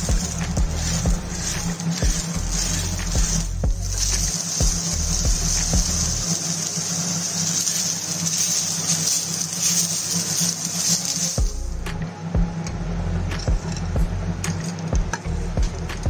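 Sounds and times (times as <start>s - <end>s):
onions sizzling in pan: 0.0s - 11.9s.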